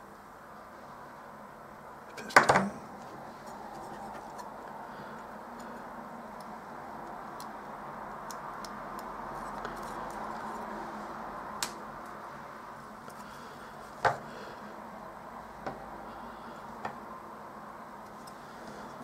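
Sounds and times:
steady background hiss: 0:00.0 - 0:19.0.

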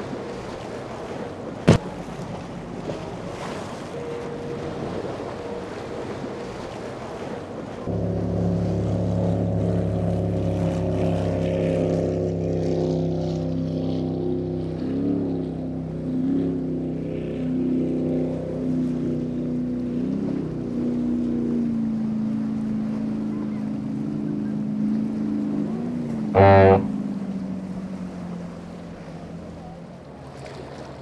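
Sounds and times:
boat engines running at speed: 0:00.0 - 0:31.0.

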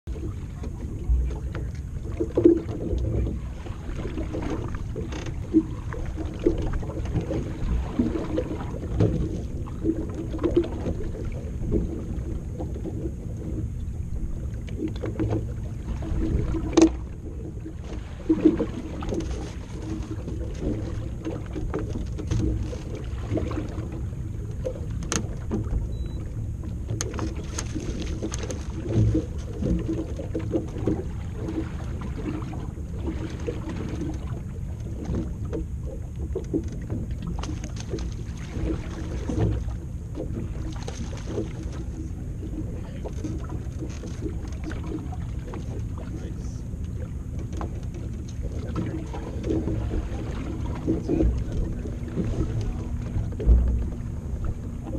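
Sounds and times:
small waves slapping a boat hull: 0:00.0 - 0:54.9
steady low rumble: 0:00.1 - 0:54.9
knocks on a boat: 0:16.1 - 0:17.1, 0:47.2 - 0:54.9.

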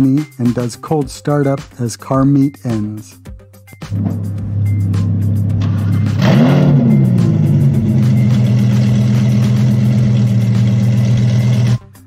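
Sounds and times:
sports car engine idling: 0:04.0 - 0:11.8.

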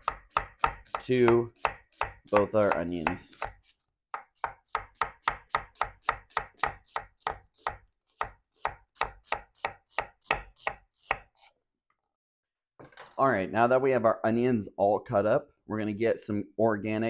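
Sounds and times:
knife slicing onion on board: 0:00.0 - 0:11.5.

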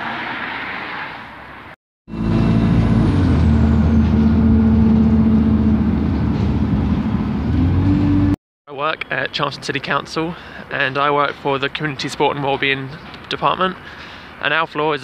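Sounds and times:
vehicle engine drone from inside: 0:02.1 - 0:08.4.

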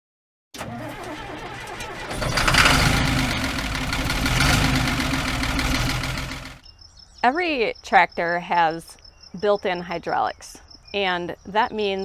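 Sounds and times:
engine starting and running: 0:00.6 - 0:06.6.

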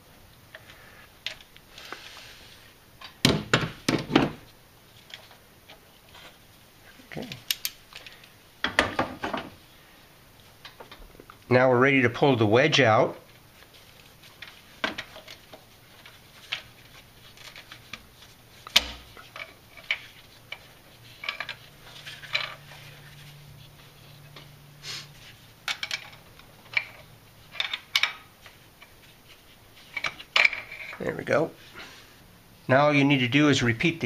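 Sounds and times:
metallic clicks of hand tools: 0:07.3 - 0:08.1.

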